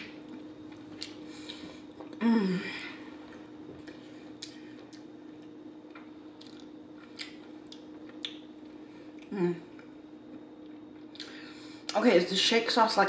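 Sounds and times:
hum falling in pitch: 0.0 - 3.8, 9.2 - 9.8
chewing with wet mouth clicks: 3.8 - 11.3.

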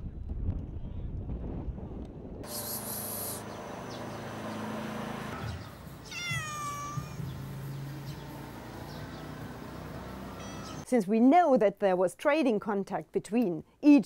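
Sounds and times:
cat meowing: 6.0 - 7.3, 10.4 - 10.8.

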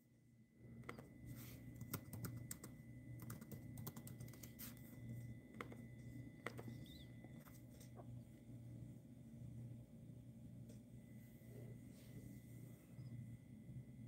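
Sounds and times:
laptop keyboard typing: 0.8 - 8.0.

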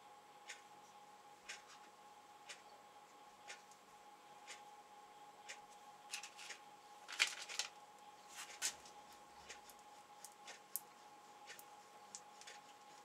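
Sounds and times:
regular ticking: 0.3 - 6.7, 9.1 - 13.0
plastic packaging crinkling: 6.2 - 7.8.

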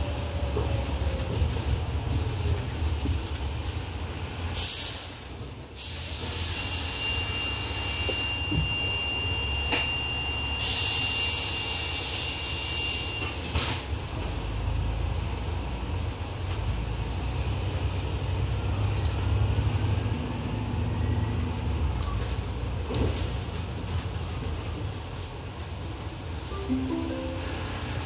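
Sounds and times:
bus engine drone: 0.0 - 28.0
air hiss burst: 4.6 - 8.0, 10.6 - 13.5.

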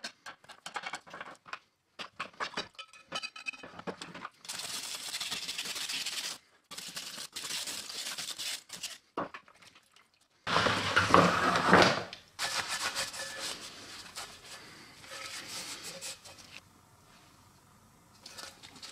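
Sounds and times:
scrub brush scrubbing metal: 4.4 - 9.1, 12.4 - 16.6.

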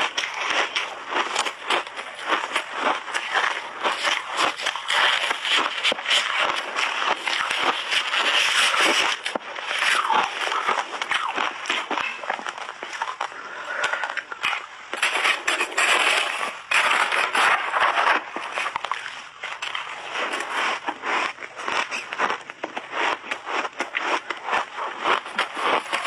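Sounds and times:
chewing ice: 0.0 - 26.0
shaved ice crunching in hands: 0.0 - 26.0
metal spoon scooping ice: 15.0 - 18.8.

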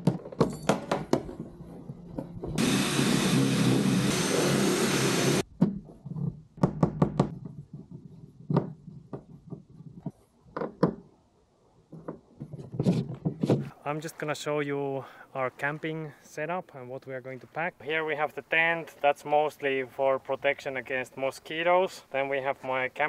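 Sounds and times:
cordless drill running: 2.6 - 5.4.

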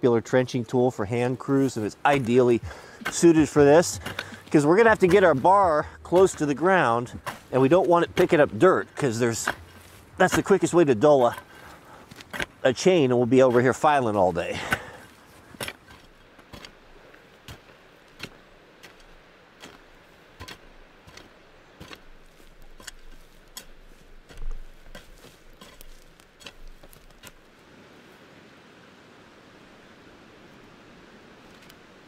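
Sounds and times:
trenching tool chopping into dirt: 2.0 - 12.6, 17.5 - 27.5.

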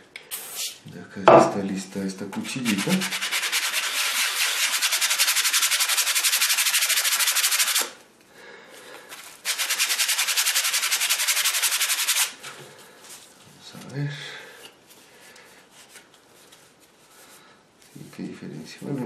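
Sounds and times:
sandpaper rubbing on steel: 2.6 - 7.9, 9.4 - 12.4.

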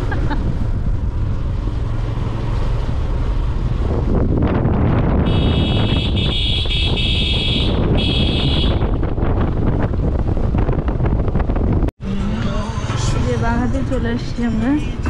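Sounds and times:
wind noise: 0.0 - 11.9
motorcycle engine rumbling: 0.0 - 15.0.

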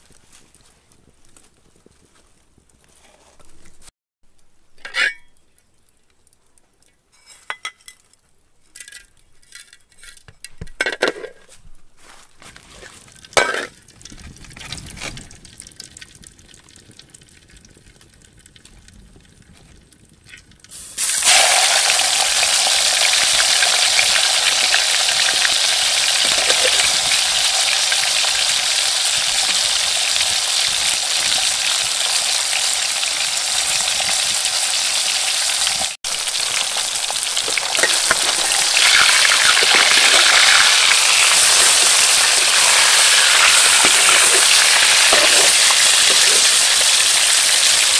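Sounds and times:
fish sizzling in hot oil: 20.5 - 47.9.

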